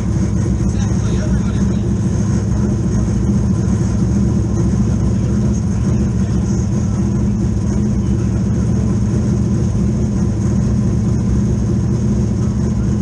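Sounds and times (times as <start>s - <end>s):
race car engine drone: 0.0s - 13.0s.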